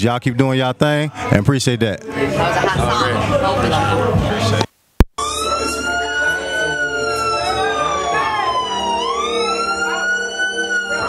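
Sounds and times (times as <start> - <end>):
siren-like wail in hip-hop beat: 5.2 - 11.0.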